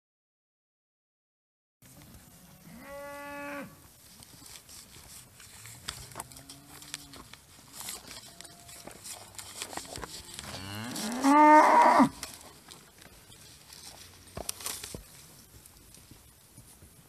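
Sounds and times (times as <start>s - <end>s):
cows mooing: 2.6s - 3.8s, 6.0s - 7.2s, 9.8s - 12.4s.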